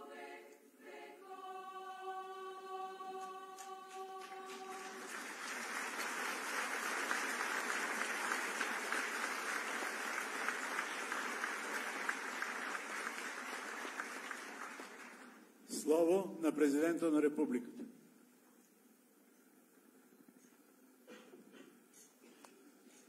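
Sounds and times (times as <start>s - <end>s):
choir holding a chord: 0.0s - 8.9s
large audience applauding: 3.6s - 15.5s.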